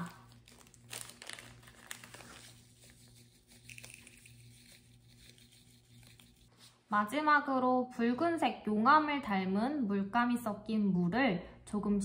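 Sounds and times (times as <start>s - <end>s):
plastic bag crinkling: 0.0s - 6.5s.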